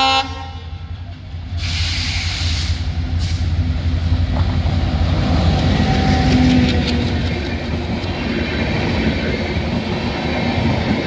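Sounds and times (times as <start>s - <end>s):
locomotive engine rumbling: 0.0s - 11.0s
loud hiss: 1.6s - 3.6s.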